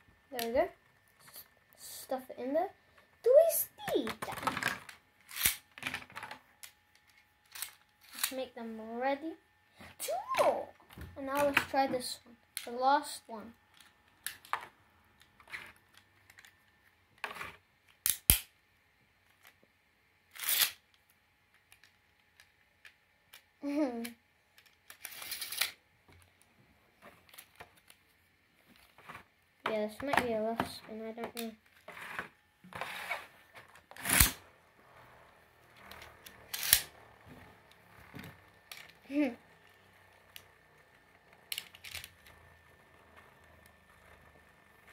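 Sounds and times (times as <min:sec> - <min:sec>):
spinning top whirring: 0:20.3 - 0:20.8, 0:24.9 - 0:25.8, 0:31.8 - 0:44.9
ripcord rasp: 0:31.9 - 0:33.3, 0:34.0 - 0:34.4
short plastic rasps: 0:35.8 - 0:36.9.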